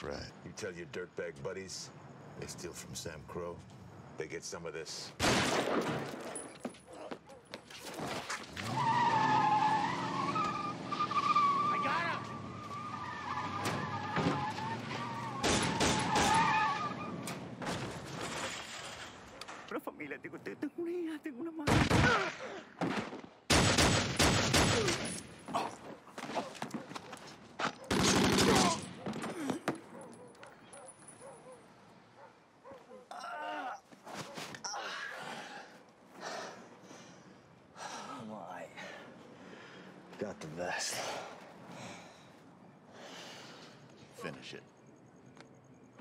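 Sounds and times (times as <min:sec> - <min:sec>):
gunshot: 0:05.2 - 0:06.2, 0:15.4 - 0:16.4, 0:21.7 - 0:25.2, 0:27.9 - 0:28.9
tyres squealing: 0:08.6 - 0:17.3
rapid gunfire: 0:23.5 - 0:25.0, 0:27.9 - 0:28.8.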